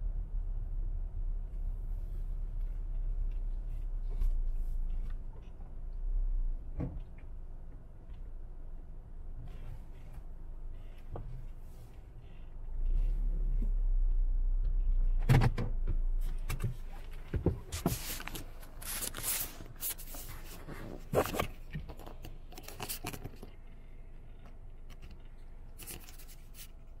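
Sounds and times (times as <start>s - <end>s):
car engine hum: 0.0s - 27.0s
rustling and scraping handling: 16.2s - 27.0s.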